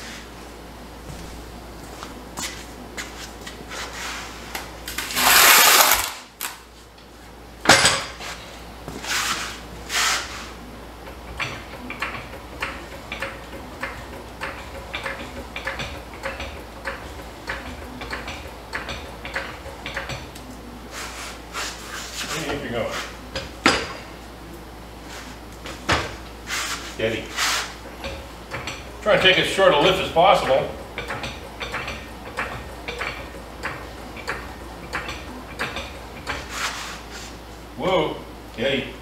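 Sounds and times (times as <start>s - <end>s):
metal scraping: 5.0s - 6.1s.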